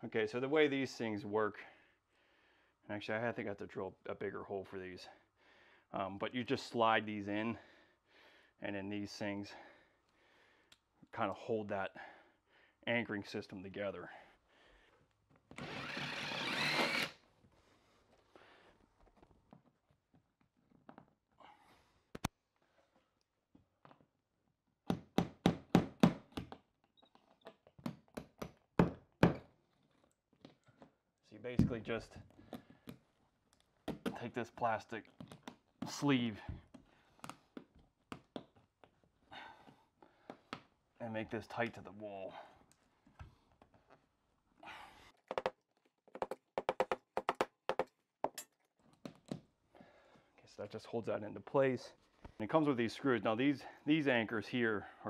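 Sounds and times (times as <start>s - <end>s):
hammer knocking wall anchor: 24.8s - 26.6s, 27.8s - 29.5s, 45.3s - 47.9s.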